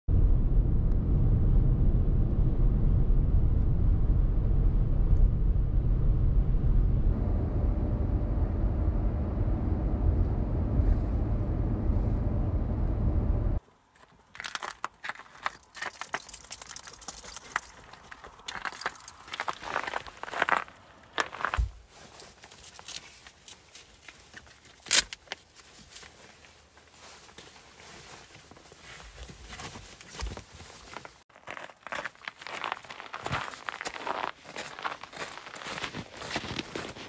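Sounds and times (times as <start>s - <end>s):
car road and engine rumble: 0.1s - 13.7s
leash clips clinking: 14.3s - 20.4s.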